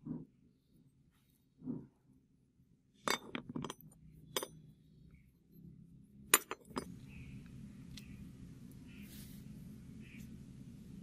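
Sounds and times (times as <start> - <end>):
metal parts clinking: 3.0 - 4.6, 6.3 - 7.0.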